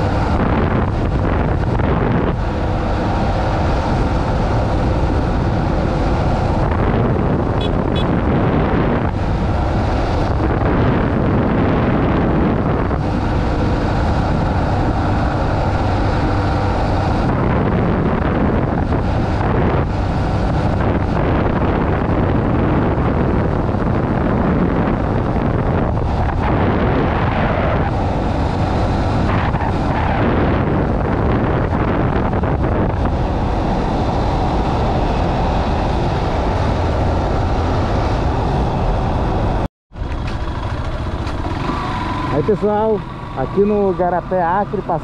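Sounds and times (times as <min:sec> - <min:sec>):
wind buffeting microphone: 0:00.0 - 0:45.0
motorcycle engine running: 0:30.6 - 0:45.0.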